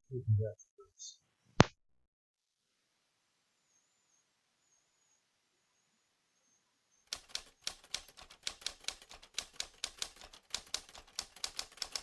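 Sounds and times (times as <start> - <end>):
typewriter keys clacking: 7.1 - 12.0.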